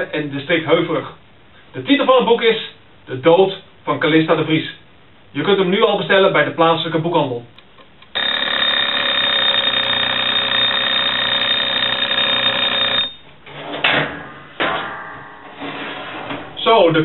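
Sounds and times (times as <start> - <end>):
kitchen timer bell ringing: 8.2 - 13.2.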